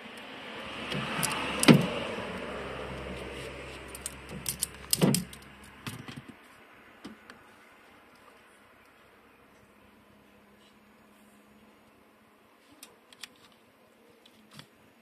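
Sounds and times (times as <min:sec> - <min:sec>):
wire strippers clicking: 0:00.9 - 0:02.0, 0:03.4 - 0:06.1.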